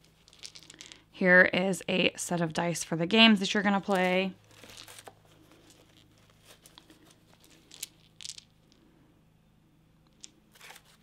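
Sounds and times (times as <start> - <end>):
wooden dice clicking: 0.0 - 1.0, 4.7 - 8.8, 10.0 - 10.4.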